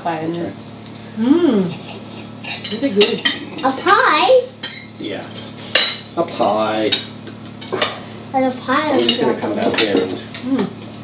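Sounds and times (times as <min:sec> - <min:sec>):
cutlery clinking on plates: 0:04.6 - 0:08.0, 0:08.9 - 0:10.5.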